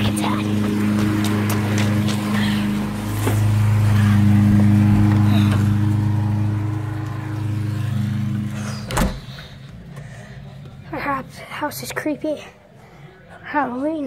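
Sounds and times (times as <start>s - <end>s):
low machine hum: 0.0s - 11.2s.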